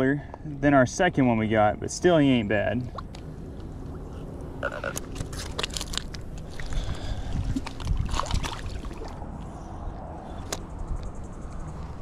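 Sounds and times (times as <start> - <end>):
wind rumble on microphone: 3.1 - 12.0
fishing tackle clicks and rustles: 4.6 - 9.1
footsteps on gravel and shells: 4.8 - 8.8.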